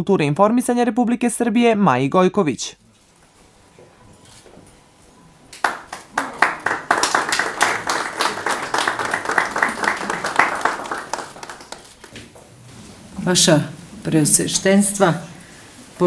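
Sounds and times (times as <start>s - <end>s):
audience applauding: 5.6s - 12.2s.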